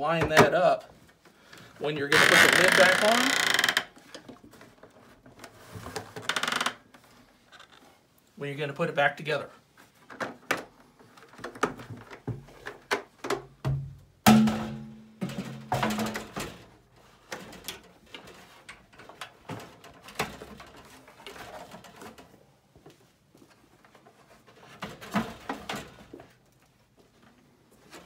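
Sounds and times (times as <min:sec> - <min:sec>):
plastic bucket knocking and scraping: 0:11.3 - 0:16.7, 0:24.4 - 0:26.4.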